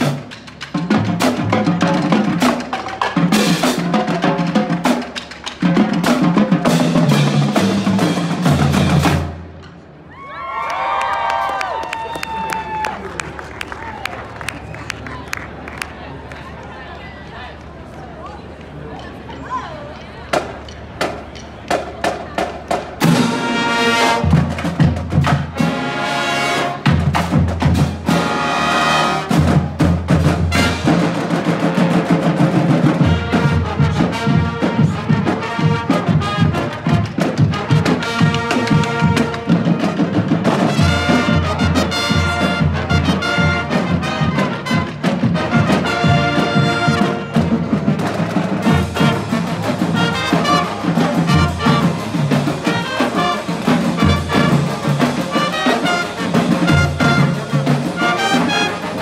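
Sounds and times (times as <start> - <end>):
brass band playing: 0.0 - 9.7, 23.0 - 59.0.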